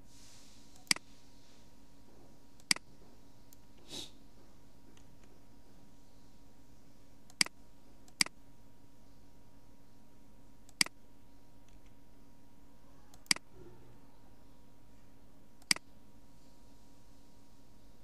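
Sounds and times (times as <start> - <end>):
faint steady hum: 0.0 - 18.0
computer mouse clicking: 2.6 - 2.9, 7.3 - 8.4, 10.7 - 11.0, 13.1 - 13.4, 15.6 - 15.8.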